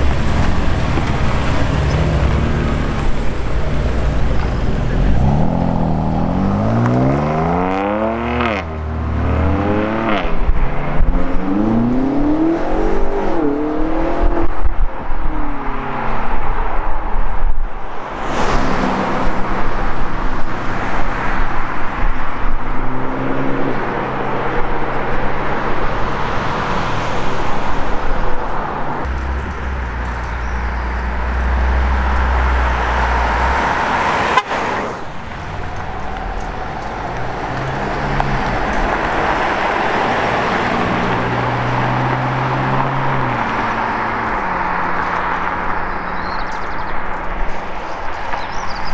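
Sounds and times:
car accelerating with upshifts: 0:00.0 - 0:16.1, 0:28.8 - 0:46.0
car engine passing by: 0:22.8 - 0:47.1.

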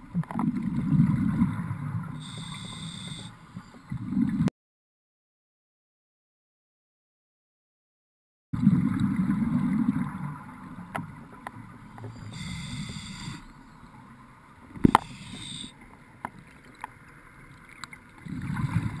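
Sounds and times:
rumble of exhaled bubbles: 0:00.0 - 0:03.2, 0:08.6 - 0:10.9, 0:18.1 - 0:19.0
regulator inhale hiss: 0:02.2 - 0:03.4, 0:12.1 - 0:13.6, 0:14.8 - 0:15.7.

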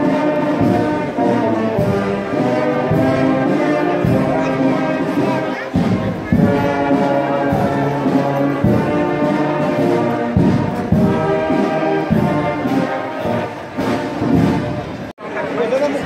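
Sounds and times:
brass band playing: 0:00.0 - 0:15.6.

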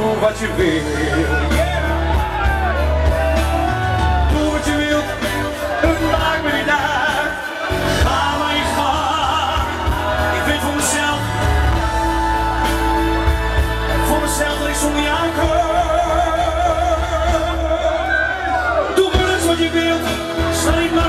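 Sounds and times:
loud backing music with bass: 0:00.0 - 0:21.0
man singing: 0:00.0 - 0:21.0.

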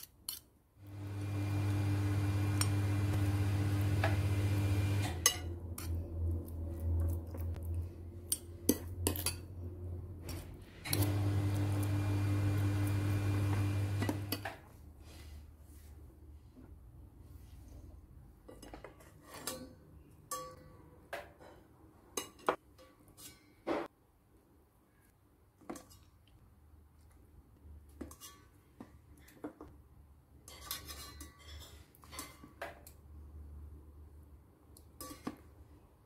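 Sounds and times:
tongs clinking on plate and pot: 0:05.0 - 0:06.0.

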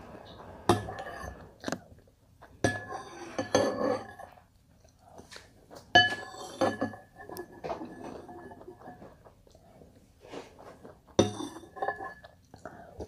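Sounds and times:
spoon scraping glass bowl: 0:00.7 - 0:01.6, 0:02.6 - 0:04.4, 0:06.0 - 0:09.1.

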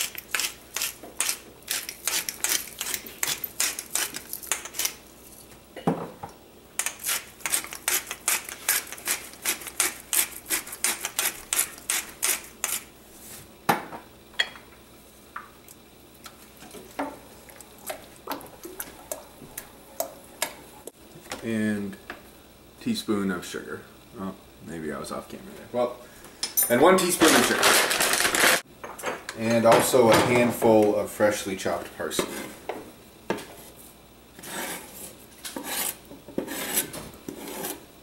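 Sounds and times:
spoon scraping in a stockpot: 0:34.4 - 0:37.9.

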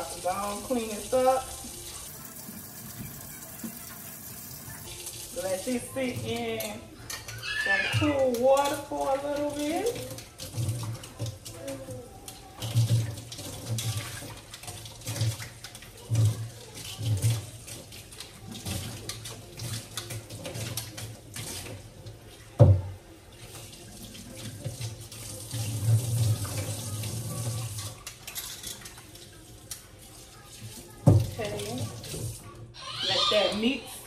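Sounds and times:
water splashing: 0:00.0 - 0:06.8
faucet running into sink: 0:00.0 - 0:34.0.

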